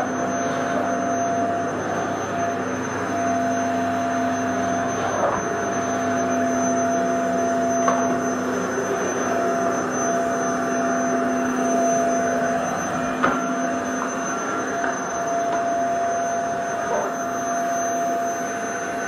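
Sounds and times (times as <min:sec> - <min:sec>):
vacuum cleaner running: 0:00.0 - 0:19.0.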